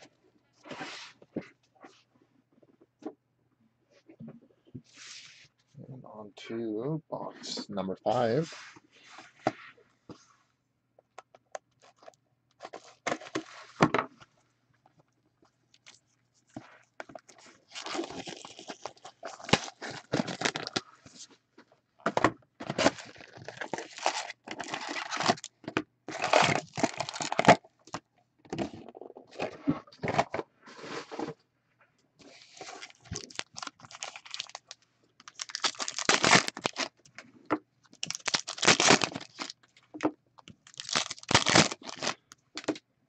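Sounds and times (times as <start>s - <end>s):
wrappers tearing and crinkling: 17.7s - 20.8s, 22.7s - 25.5s, 26.1s - 27.6s, 32.6s - 36.9s, 37.9s - 39.7s, 40.6s - 42.2s.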